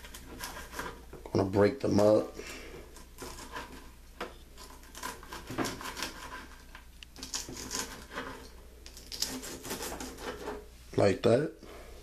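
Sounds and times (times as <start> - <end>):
knife crunching crispy bacon: 4.6 - 8.2, 8.9 - 10.1.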